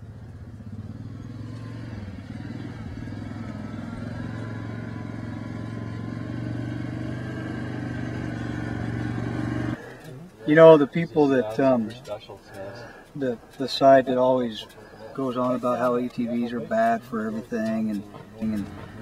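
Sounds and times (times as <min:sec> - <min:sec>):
quad bike engine running: 0:00.0 - 0:09.9, 0:17.2 - 0:19.0.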